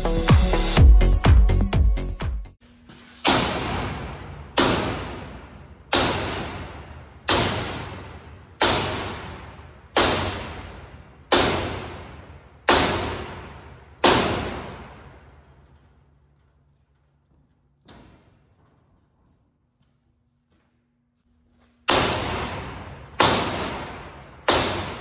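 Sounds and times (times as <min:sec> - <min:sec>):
sledgehammer striking steel: 0:03.1 - 0:15.6, 0:21.9 - 0:25.0.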